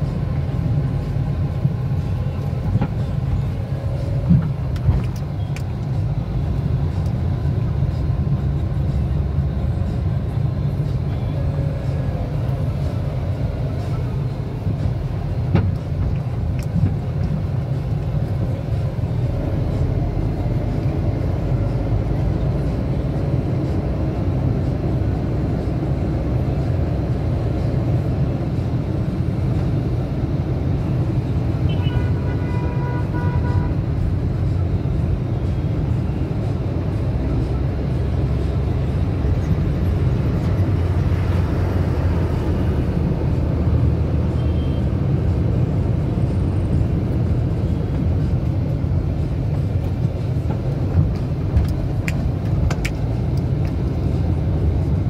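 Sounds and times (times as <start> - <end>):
car cabin road and engine rumble: 0.0 - 55.0
vehicle horn: 31.7 - 33.8.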